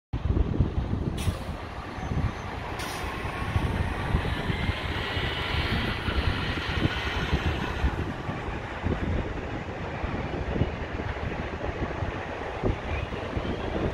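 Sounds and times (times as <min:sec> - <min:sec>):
jet engines spooling up: 0:01.2 - 0:09.0.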